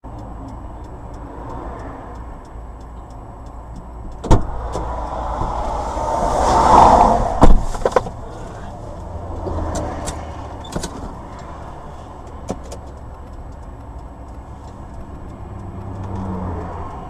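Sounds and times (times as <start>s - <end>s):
faint regular ticking: 0.0s - 5.2s, 8.2s - 17.0s
loud thumps: 4.2s - 5.6s, 7.0s - 8.2s
sharp knock: 7.4s - 8.1s.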